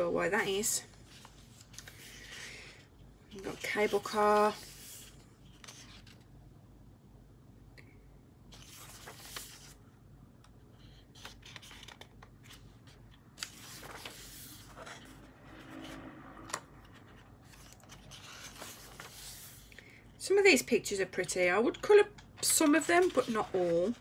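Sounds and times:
paper pages rustling and crackling: 0:01.0 - 0:02.5, 0:03.3 - 0:06.3, 0:08.5 - 0:09.8, 0:10.8 - 0:19.9, 0:21.2 - 0:24.0.

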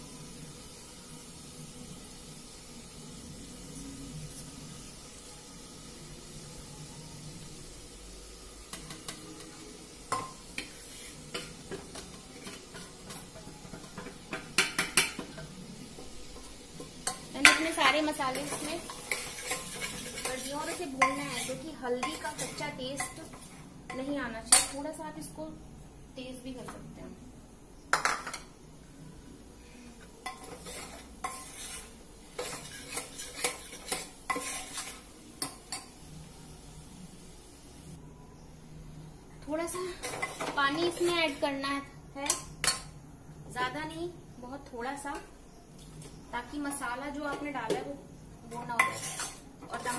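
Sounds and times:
food sizzling: 0:00.0 - 0:49.9
metal spoon scraping pan: 0:16.8 - 0:24.8, 0:30.2 - 0:35.6, 0:48.5 - 0:49.9.

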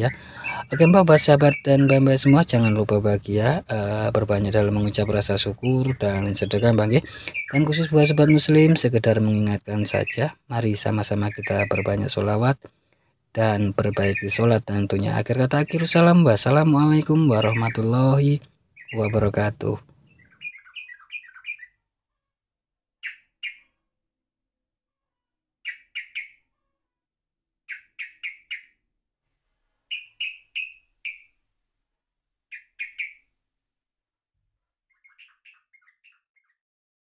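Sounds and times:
bird twittering: 0:00.0 - 0:12.6, 0:13.4 - 0:21.8, 0:23.0 - 0:23.8, 0:25.6 - 0:26.4, 0:27.7 - 0:28.8, 0:29.9 - 0:31.4, 0:32.5 - 0:33.3, 0:34.9 - 0:36.6
small bird chirping: 0:00.0 - 0:12.6, 0:13.4 - 0:21.9, 0:23.0 - 0:23.8, 0:25.6 - 0:26.8, 0:27.7 - 0:28.8, 0:29.8 - 0:31.4, 0:32.5 - 0:33.3, 0:34.8 - 0:36.6.

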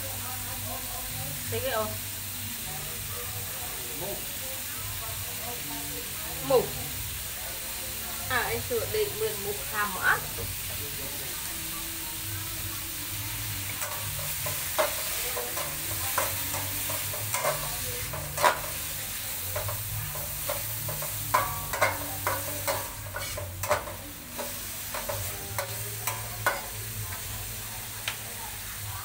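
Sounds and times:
food sizzling in a pan: 0:00.0 - 0:29.0
spatula clinking and scraping: 0:13.7 - 0:27.3.

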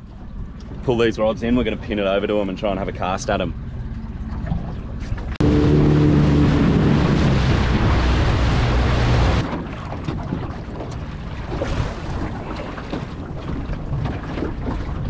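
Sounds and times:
outboard motor droning: 0:00.0 - 0:15.0
wind: 0:00.0 - 0:15.0
water rushing: 0:01.1 - 0:09.9.

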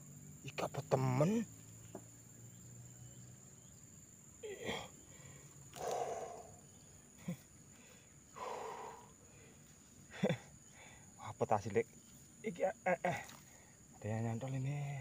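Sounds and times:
man grunting: 0:04.4 - 0:04.9
man breathing heavily: 0:04.6 - 0:11.2.

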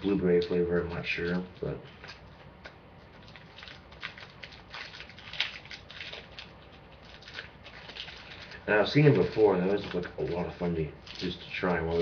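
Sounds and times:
plastic wrapper crinkling: 0:00.0 - 0:12.0.

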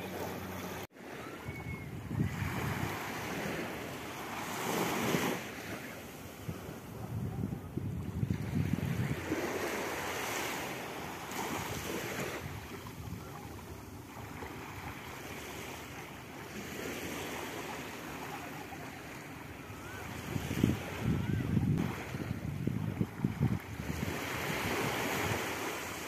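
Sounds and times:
sea waves breaking on beach: 0:00.0 - 0:26.0
wind rumbling on microphone: 0:01.2 - 0:03.8, 0:06.2 - 0:10.2, 0:11.5 - 0:13.9, 0:19.8 - 0:25.8.

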